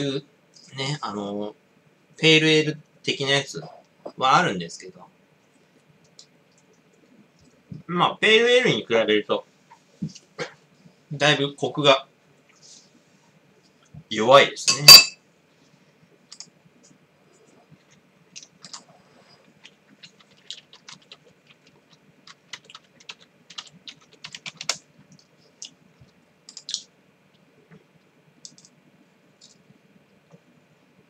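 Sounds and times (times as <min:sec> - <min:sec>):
keyboard typing: 0:18.4 - 0:19.0, 0:19.6 - 0:26.9, 0:28.4 - 0:28.8.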